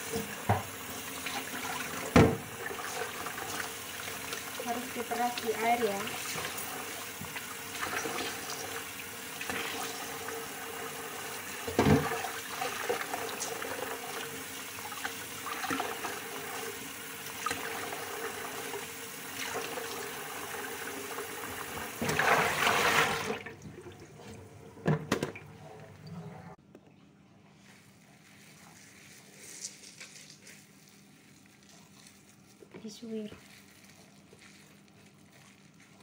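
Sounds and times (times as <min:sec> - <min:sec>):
tap running into steel sink: 0:00.0 - 0:00.8
water splashing: 0:21.7 - 0:26.6
hands squeezing wet food: 0:27.4 - 0:36.0.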